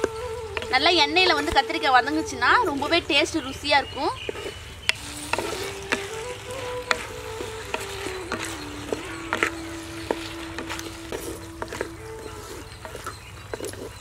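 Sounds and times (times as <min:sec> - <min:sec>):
vegetables sizzling in hot oil: 0:02.7 - 0:13.9
wooden spoon knocking pot: 0:03.2 - 0:14.0.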